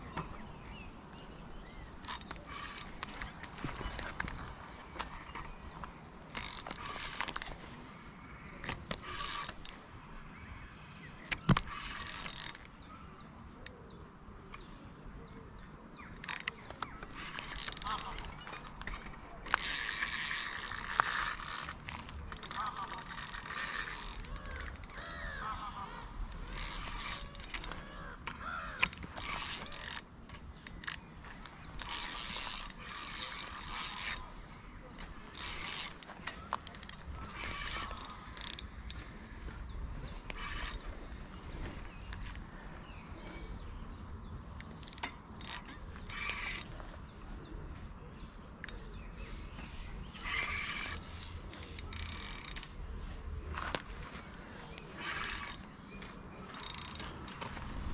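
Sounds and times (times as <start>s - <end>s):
fishing reel gears whirring: 1.8s - 4.5s, 6.2s - 7.6s, 8.6s - 9.8s, 11.2s - 12.8s, 16.2s - 25.5s, 26.1s - 42.1s, 44.6s - 46.8s, 50.2s - 53.0s, 54.9s - 55.8s, 56.4s - 57.9s.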